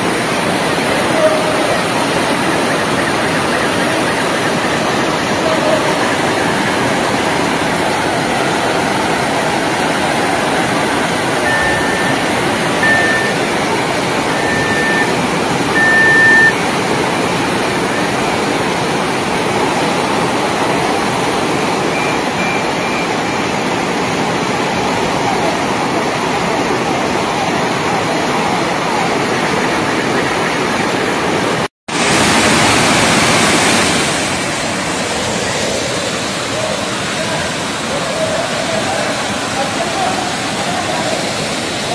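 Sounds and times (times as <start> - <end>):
floodwater rushing: 0.0 - 41.9
short high beeps: 11.4 - 13.5, 14.2 - 16.6.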